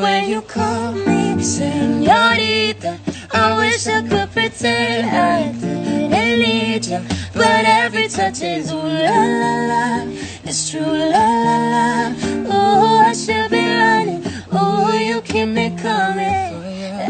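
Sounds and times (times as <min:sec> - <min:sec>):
man singing: 0:00.0 - 0:09.2, 0:14.4 - 0:17.0
strummed acoustic guitar: 0:00.0 - 0:17.0
woman singing: 0:00.0 - 0:17.0.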